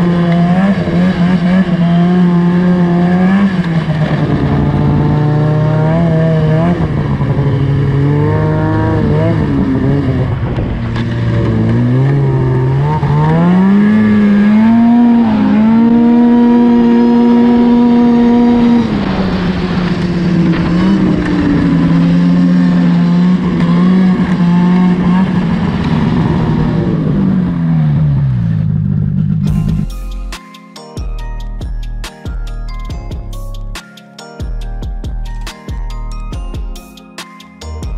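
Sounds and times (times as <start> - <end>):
snowmobile engine revving: 0.0 - 29.9.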